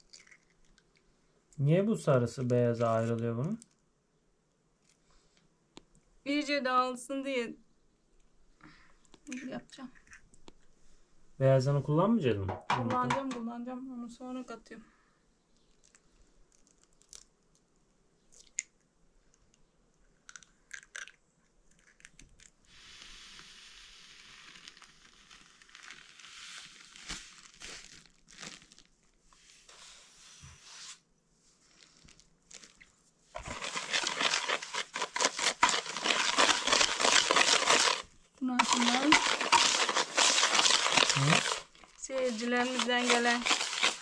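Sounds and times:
hand whisk beating eggs in bowl: 0:33.4 - 0:44.0.

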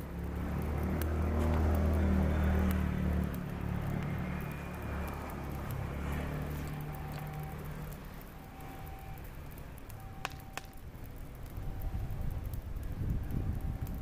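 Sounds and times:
vehicle engine running: 0:00.0 - 0:10.3.

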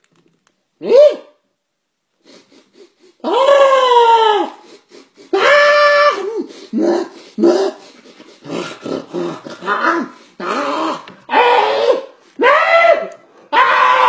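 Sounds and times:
man imitating dog yelps and growls: 0:00.8 - 0:01.4, 0:03.2 - 0:04.6, 0:05.3 - 0:07.8, 0:08.5 - 0:14.0.

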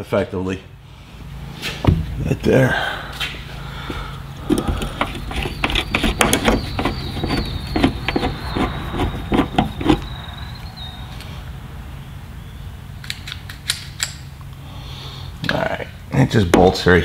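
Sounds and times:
low hum: 0:00.6 - 0:16.2
faint high whine: 0:03.6 - 0:13.0.

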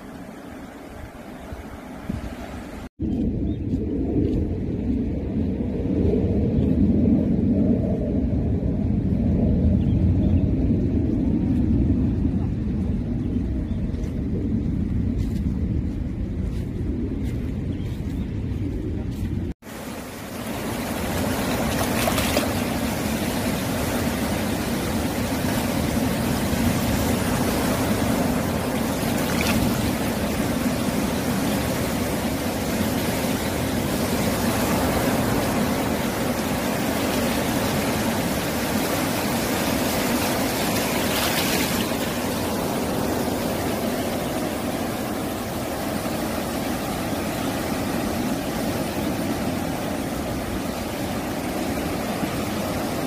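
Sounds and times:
waves washing over rocky shore: 0:19.7 - 0:53.0.

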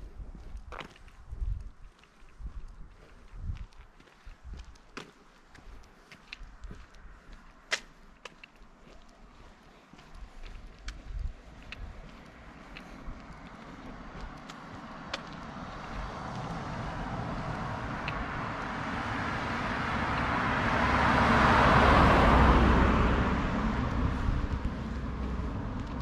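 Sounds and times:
van driving past: 0:14.8 - 0:26.0.

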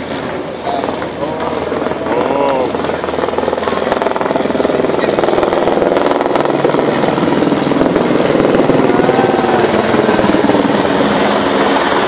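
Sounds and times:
helicopter flying low overhead: 0:00.0 - 0:12.0.

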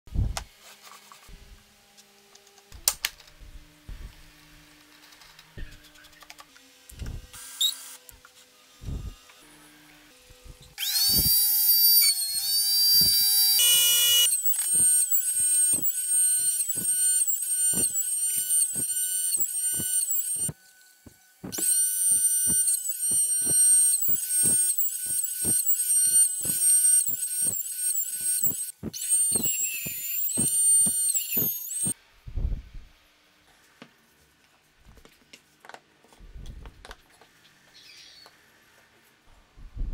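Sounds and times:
wood router high-pitched whine: 0:06.7 - 0:32.0.

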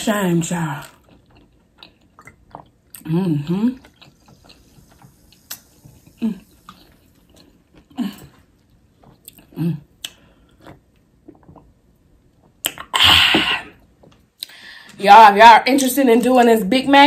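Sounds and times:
low hums: 0:02.3 - 0:14.8
mouth smacks and clicks: 0:12.4 - 0:13.0.

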